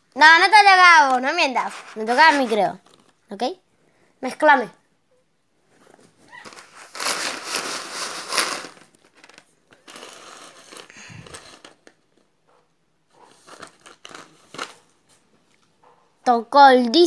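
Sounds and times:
plastic tokens rattling and scraping: 6.4 - 12.0, 13.3 - 14.8.

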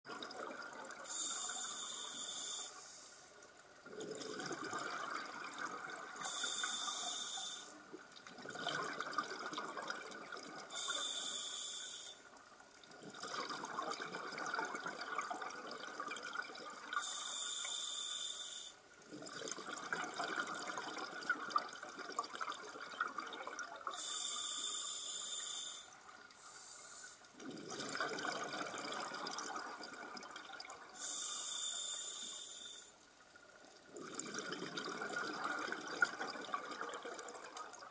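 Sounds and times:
regulator inhalation hiss: 1.1 - 3.2, 6.2 - 7.8, 10.7 - 12.2, 17.0 - 18.8, 23.9 - 27.2, 31.0 - 32.9
exhaled air bubbling: 3.8 - 26.4, 27.3 - 37.9.

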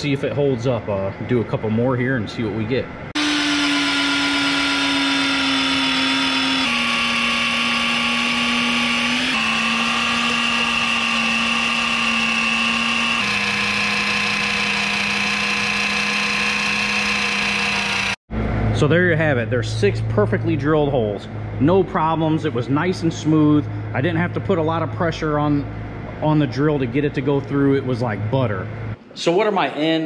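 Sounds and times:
drill press motor whine: 3.1 - 18.2.

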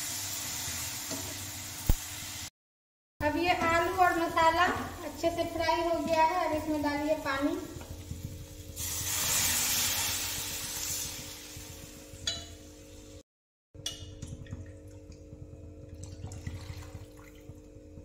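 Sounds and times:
water splashing into hot pan: 7.9 - 11.9
pan bubbling: 13.8 - 18.0.

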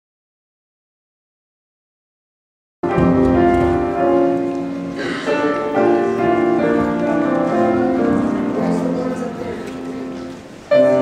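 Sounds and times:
instrumental keyboard music: 2.8 - 11.0.

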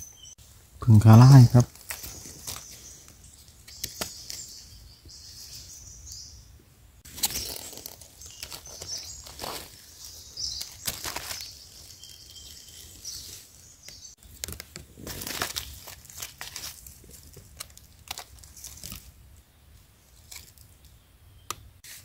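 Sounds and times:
dry leaves rustling and crackling: 1.3 - 4.6, 7.0 - 19.2.

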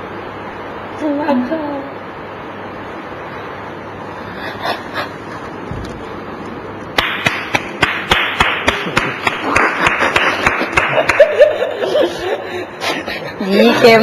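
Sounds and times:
hands clapping in rhythm: 7.0 - 11.5
laughter: 8.7 - 13.3.

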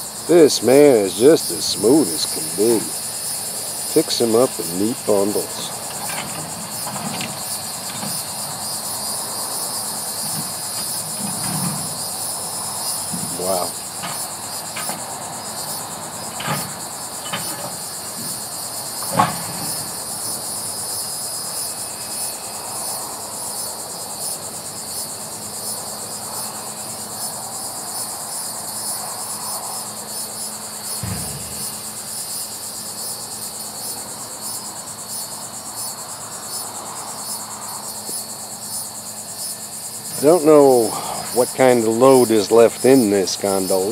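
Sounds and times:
insect chorus: 0.0 - 43.9
dull thud: 31.0 - 32.0.

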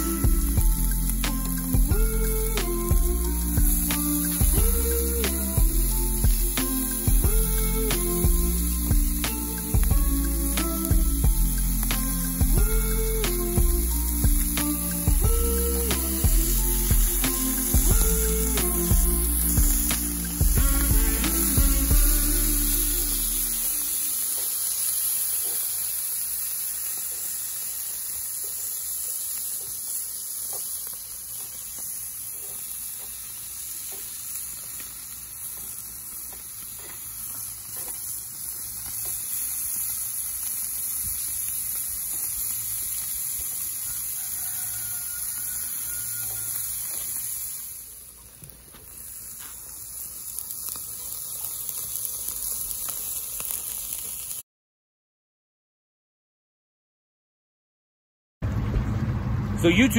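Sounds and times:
food sizzling on a grill: 0.0 - 54.4.

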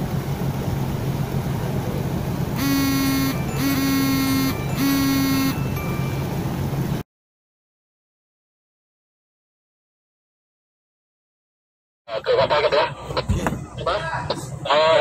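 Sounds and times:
ship's engine droning: 0.0 - 7.0
ship's horn blasts: 2.6 - 6.5.

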